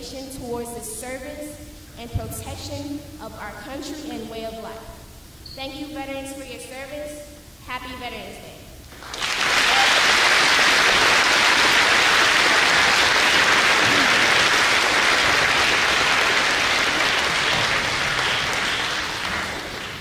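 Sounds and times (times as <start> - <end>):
audience applauding: 9.0 - 20.0.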